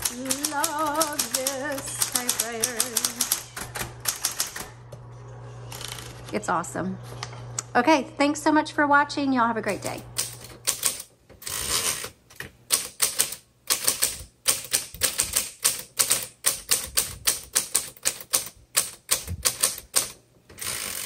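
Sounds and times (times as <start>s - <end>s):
electric typewriter key strikes: 0.0s - 4.8s, 10.2s - 11.6s, 12.7s - 21.0s
typewriter hum: 0.0s - 4.9s, 5.6s - 6.4s, 9.9s - 21.0s.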